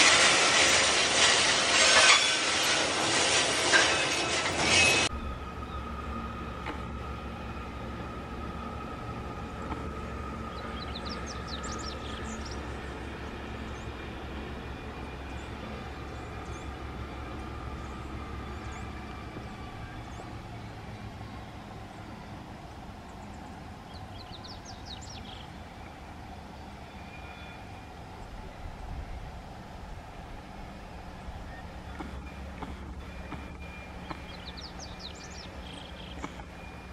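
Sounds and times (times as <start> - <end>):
freight train rumbling past: 0.0 - 36.9
bird chirps: 33.0 - 36.8.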